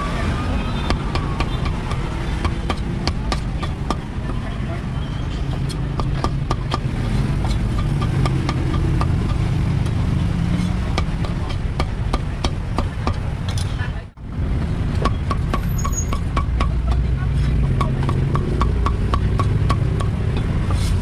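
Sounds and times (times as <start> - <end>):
cleaver chopping on wooden block: 0.9 - 4.4, 5.6 - 9.5, 10.7 - 13.3, 15.0 - 17.0, 17.6 - 20.7.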